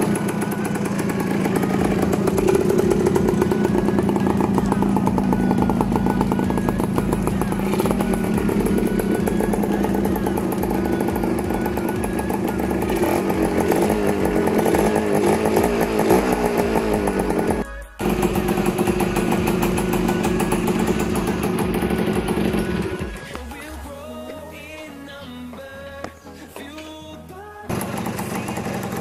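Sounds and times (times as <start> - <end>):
two-stroke motorcycle engine revving: 0.0 - 23.6, 27.7 - 29.0.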